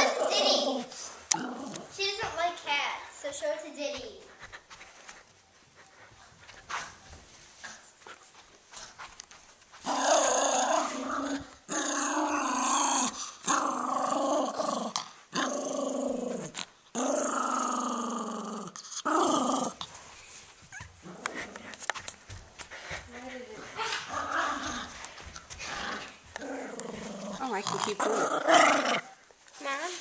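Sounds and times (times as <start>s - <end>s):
small dog play-growling: 0.0s - 2.0s, 9.7s - 20.0s, 20.7s - 22.1s, 22.7s - 29.2s.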